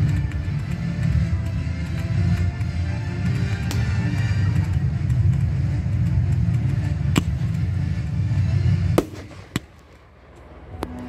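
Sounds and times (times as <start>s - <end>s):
heavy low rumble: 0.0s - 11.0s
firework cracks: 9.0s - 10.1s.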